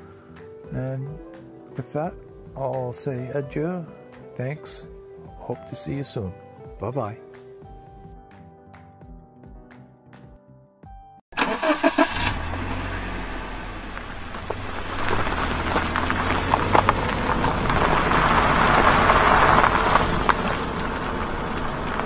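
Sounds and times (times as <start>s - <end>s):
car engine running: 11.4s - 22.0s
car engine starting: 11.4s - 22.0s.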